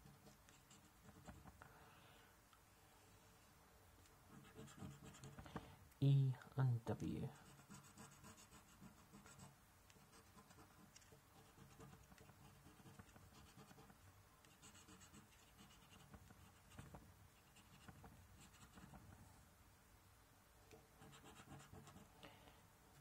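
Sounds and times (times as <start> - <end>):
coin scratching a scratchcard: 4.4 - 5.4, 7.5 - 13.9, 14.5 - 19.0, 21.0 - 22.1.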